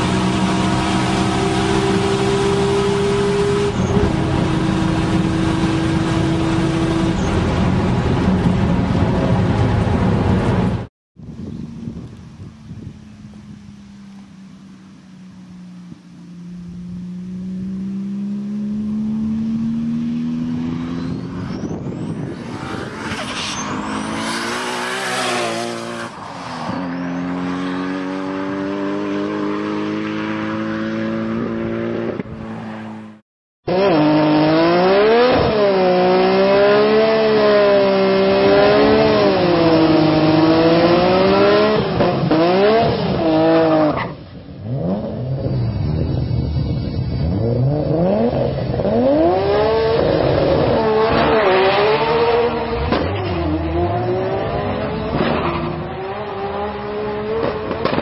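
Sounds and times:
car accelerating past: 0:16.7 - 0:33.1
engine revving during burnout: 0:17.5 - 0:26.2, 0:33.7 - 0:46.5, 0:47.2 - 0:58.0.

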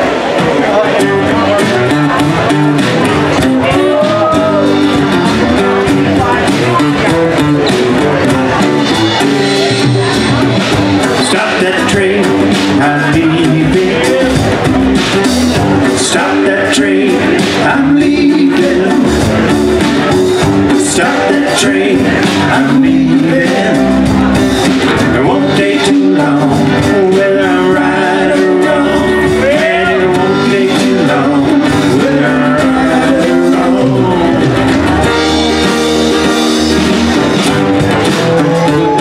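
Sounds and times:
drums: 0:00.0 - 0:39.0
electric guitar: 0:00.0 - 0:39.0
keyboard: 0:00.0 - 0:39.0
strummed acoustic guitar: 0:00.0 - 0:39.0.

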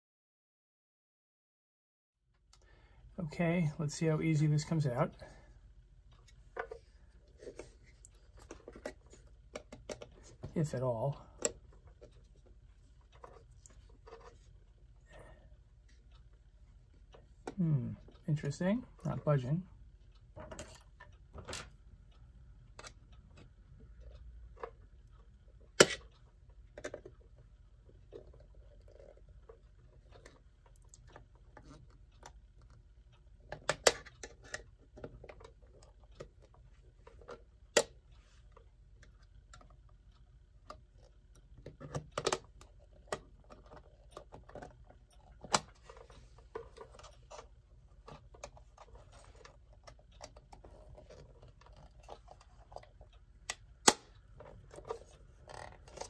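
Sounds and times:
tools clicking and scraping metal: 0:41.0 - 0:56.0.

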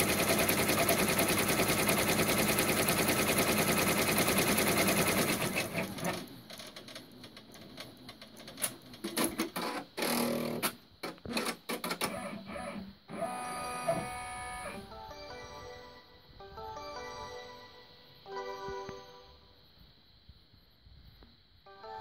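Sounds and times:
embroidery machine stitching: 0:00.0 - 0:14.8
mechanical clicks and clatters: 0:05.5 - 0:12.2
background music: 0:14.1 - 0:19.6, 0:21.7 - 0:22.0.

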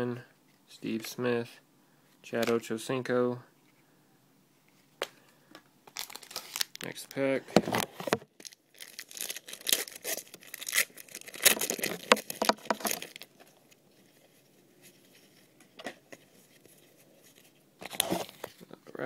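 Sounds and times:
card pack wrapper crinkling: 0:05.9 - 0:07.2, 0:08.4 - 0:13.7.

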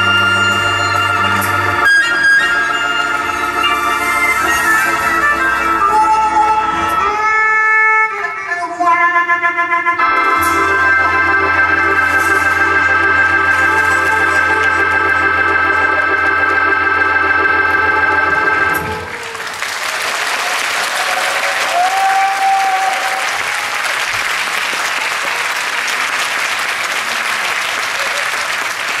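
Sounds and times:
harmonica chord: 0:00.0 - 0:19.1
audience applauding: 0:12.1 - 0:29.0.

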